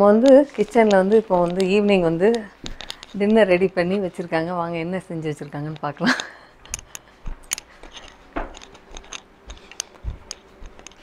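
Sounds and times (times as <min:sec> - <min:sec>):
footsteps on indoor floor: 0:00.0 - 0:04.4, 0:07.0 - 0:11.0
light clicks and ticks: 0:00.1 - 0:04.3, 0:05.4 - 0:11.0.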